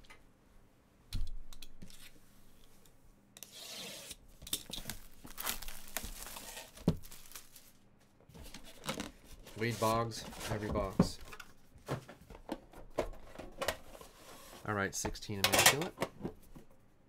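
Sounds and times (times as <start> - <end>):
plastic wrap crinkling and ripping: 4.7 - 7.8.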